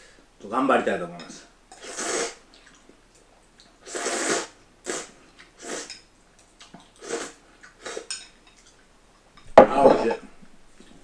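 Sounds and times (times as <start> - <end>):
person slurping noodles: 1.8 - 2.4, 3.8 - 6.0, 7.0 - 8.1.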